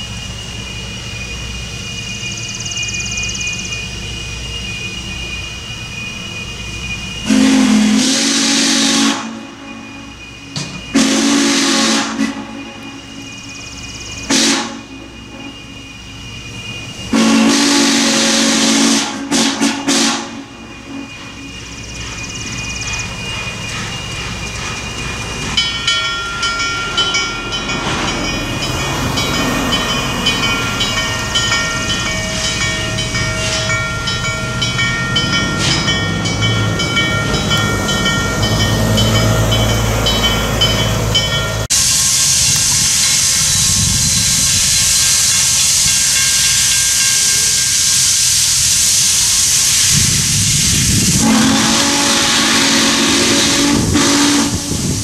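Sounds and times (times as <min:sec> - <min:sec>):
thin high tones: 0:00.0 - 0:08.2, 0:09.2 - 0:51.6
train rumbling: 0:00.0 - 0:55.0
steam whistle blowing: 0:07.2 - 0:13.2, 0:14.2 - 0:16.0, 0:17.0 - 0:21.4, 0:41.7 - 0:55.0.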